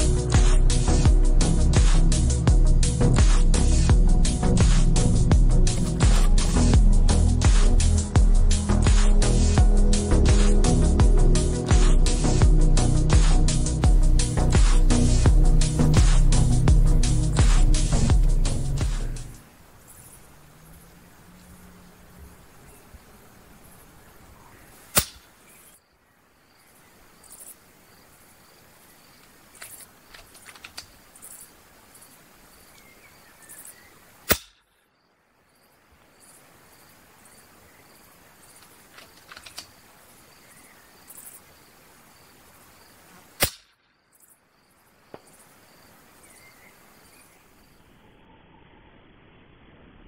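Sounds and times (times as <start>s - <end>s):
insect chirps: 0.0s - 50.0s
air rifle shot cracks: 24.9s - 25.4s, 34.2s - 34.7s, 43.4s - 43.8s
bird chirps: 46.2s - 48.9s.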